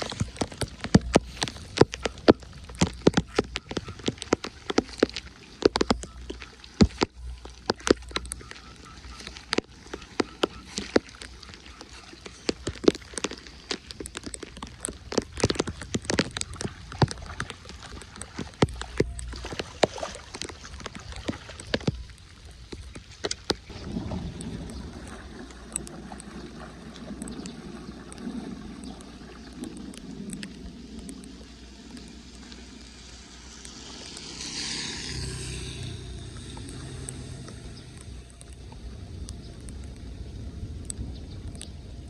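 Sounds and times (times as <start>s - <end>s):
floodwater sloshing from wading: 0.0s - 42.0s
swish of water: 23.6s - 38.6s.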